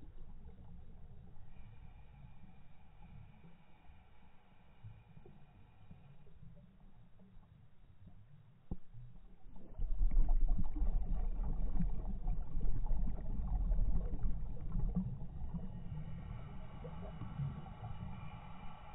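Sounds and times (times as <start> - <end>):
underwater low rumble: 0.0 - 18.9
underwater crackling: 9.4 - 15.6.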